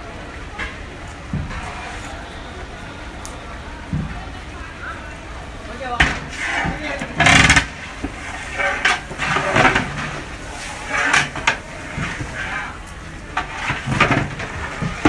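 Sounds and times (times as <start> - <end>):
paddle scraping metal pot: 1.4 - 2.3, 6.0 - 15.0.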